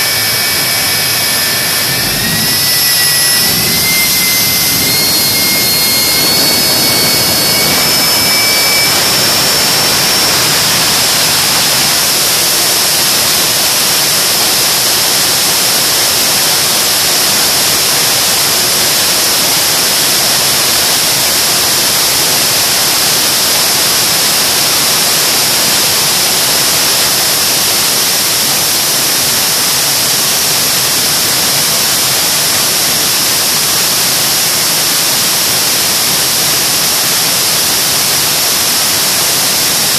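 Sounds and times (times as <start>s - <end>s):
jet engine roar: 0.0s - 39.9s.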